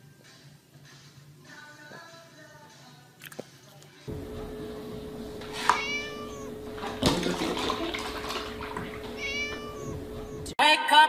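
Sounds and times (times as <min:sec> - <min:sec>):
steady hum: 0:04.1 - 0:10.6
cat meowing: 0:05.0 - 0:10.5.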